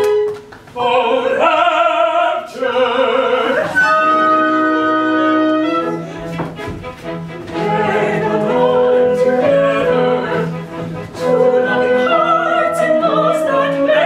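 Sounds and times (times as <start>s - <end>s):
theatre orchestra playing operetta: 1.1s - 14.0s.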